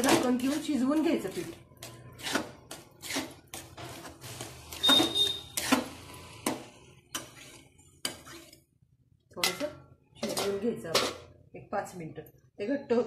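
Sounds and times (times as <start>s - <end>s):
spatula scraping a metal pan: 0.0s - 8.7s.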